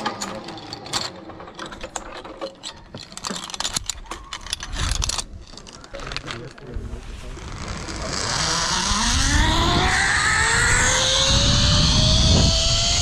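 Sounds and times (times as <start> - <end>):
metallic clicking of climbing gear: 0.0 - 6.7.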